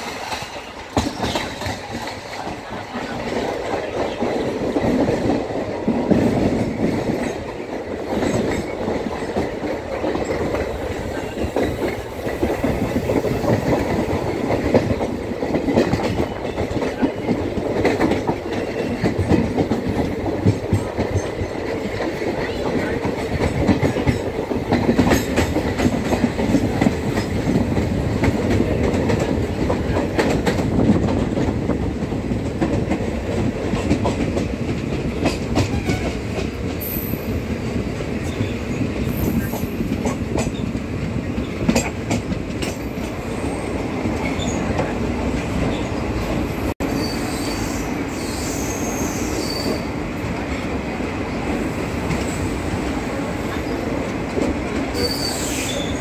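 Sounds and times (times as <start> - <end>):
train wheels rumbling on rail: 0.0 - 56.0
wheel squeals: 55.0 - 56.0.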